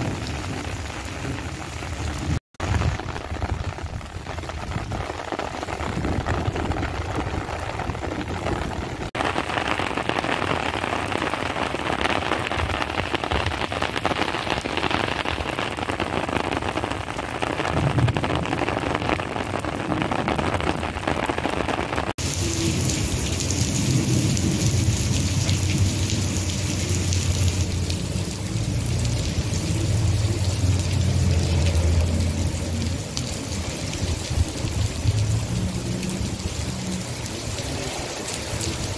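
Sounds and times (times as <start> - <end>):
heavy rain on wet street: 0.0 - 38.9
rumbles of thunder: 17.5 - 21.4, 22.2 - 32.9.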